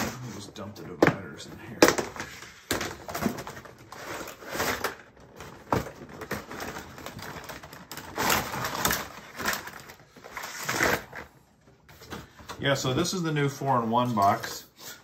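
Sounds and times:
cardboard rustling and scraping: 2.1s - 12.8s.

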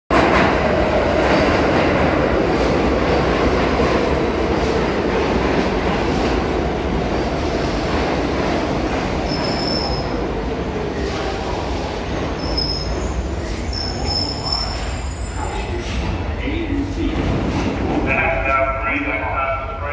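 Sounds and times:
subway train wheels rumbling: 0.1s - 19.9s
high squeal: 9.3s - 10.2s, 12.4s - 15.6s.

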